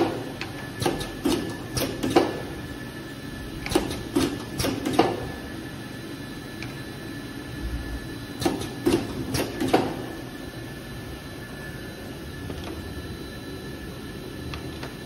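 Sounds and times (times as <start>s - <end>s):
sharp clicks and knocks: 0.0s - 2.4s, 3.6s - 5.2s
bottling machine humming: 0.0s - 15.0s
faint high whine: 10.2s - 15.0s.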